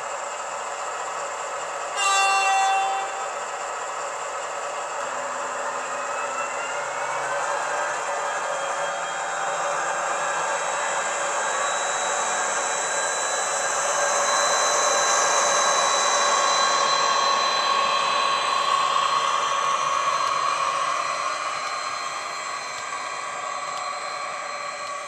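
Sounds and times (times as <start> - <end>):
diesel locomotive engine drone: 0.0 - 25.0
high whine: 2.0 - 4.0.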